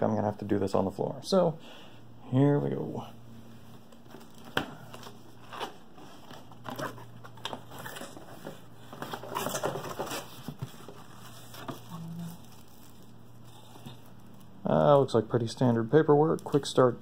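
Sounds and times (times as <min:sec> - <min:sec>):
cardboard flaps scraping and rustling: 0:04.1 - 0:13.1.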